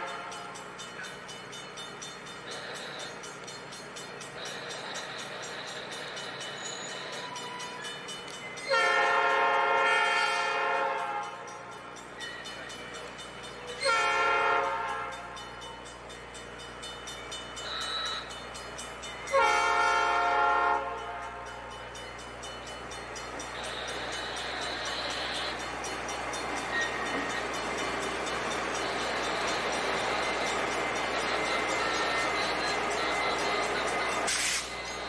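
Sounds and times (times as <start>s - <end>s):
locomotive air horn: 0.0s - 0.6s, 8.7s - 11.5s, 13.8s - 15.4s, 19.3s - 21.6s
train rolling noise: 0.0s - 35.0s
engines droning: 14.9s - 35.0s.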